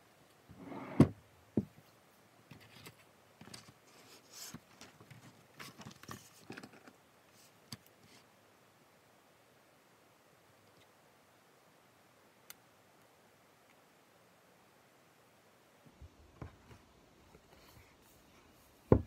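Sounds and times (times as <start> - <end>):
thump on a desk: 0.9 - 1.7.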